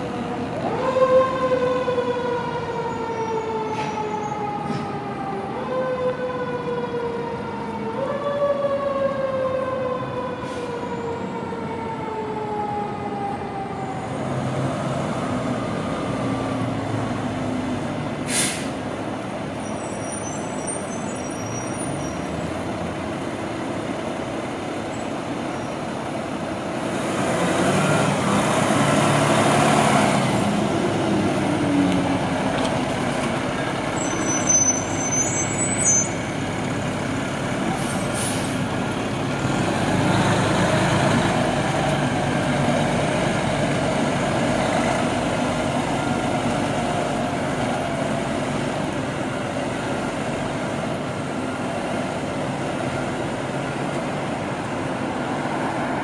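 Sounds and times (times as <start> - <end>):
fire truck diesel engine running: 10.1 - 55.7.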